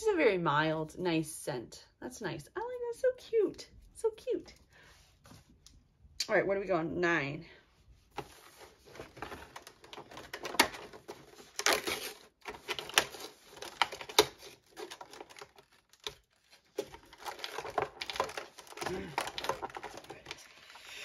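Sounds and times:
fingers tearing cardboard: 9.2s - 20.0s.

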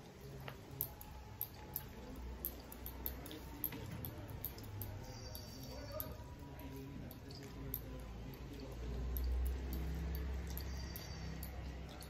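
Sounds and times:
sharp wet clicks: 0.6s - 12.0s.

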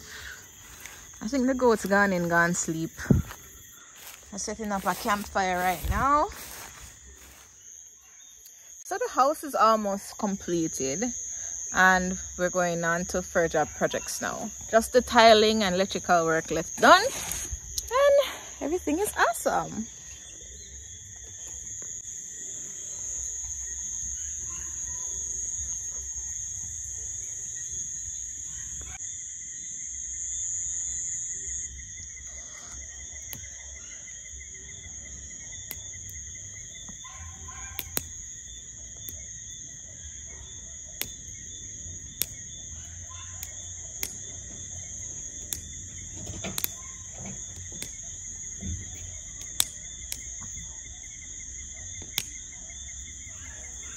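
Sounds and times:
night insects droning: 0.0s - 53.9s
sharp single clicks: 42.2s - 42.4s, 46.5s - 46.8s, 49.4s - 50.3s.

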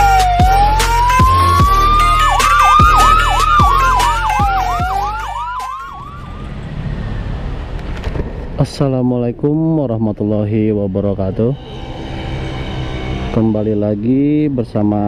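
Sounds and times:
fast yelping siren: 0.0s - 6.4s
wailing siren: 0.0s - 7.0s.

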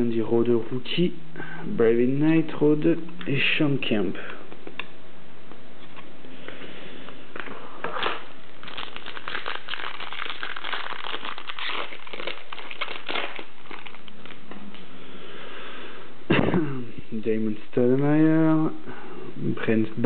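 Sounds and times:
foil wrapper crinkling: 7.4s - 14.5s.

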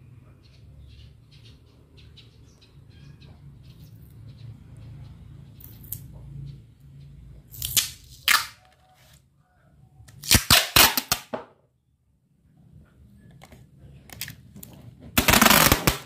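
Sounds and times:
packing tape ripping off roll: 10.2s - 11.3s, 15.2s - 16.0s.

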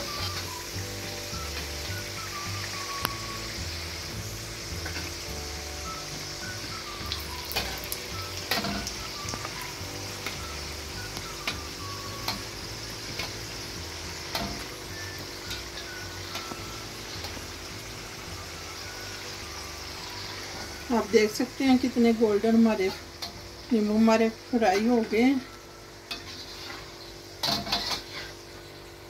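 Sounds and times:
dough deep-frying in oil: 0.0s - 29.0s
metal spoon clinking on pan: 27.4s - 28.3s.

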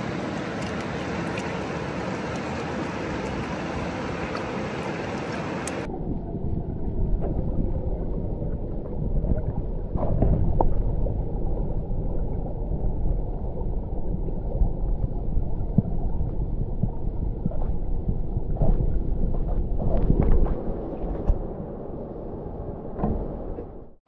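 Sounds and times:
rushing river water: 0.0s - 5.9s.

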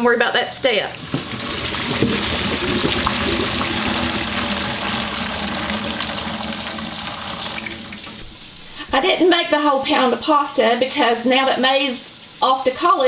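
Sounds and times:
water pouring into steel sink: 1.0s - 8.7s.

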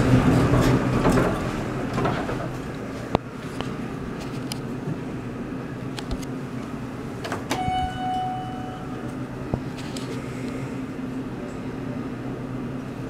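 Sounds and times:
steady background hum: 0.0s - 13.0s
elevator chime ding: 7.5s - 9.5s.

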